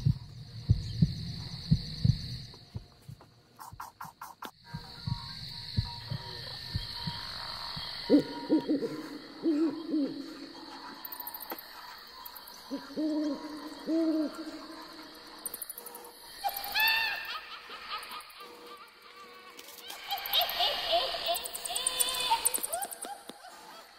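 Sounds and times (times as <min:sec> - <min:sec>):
owl hooting: 0:06.0 - 0:11.0, 0:12.6 - 0:15.2.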